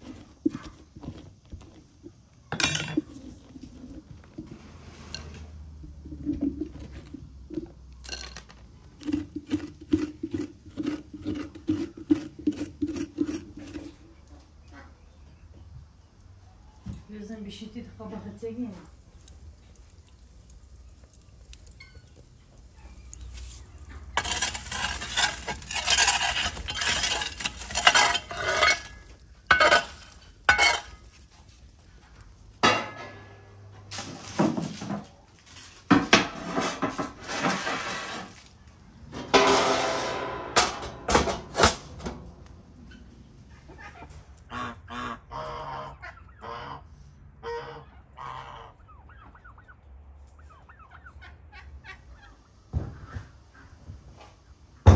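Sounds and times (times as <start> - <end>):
metal baking tray scraping and clattering: 23.9 - 31.2, 32.6 - 33.3, 33.9 - 38.5, 39.1 - 42.0.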